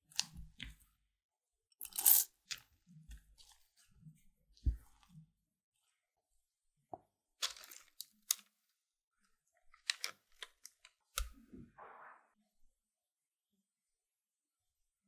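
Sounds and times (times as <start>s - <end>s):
parchment paper crinkling: 7.4s - 8.5s.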